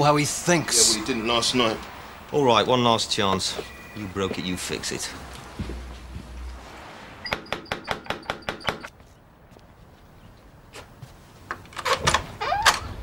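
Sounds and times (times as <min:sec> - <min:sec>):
short creak: 0:11.8 - 0:13.0.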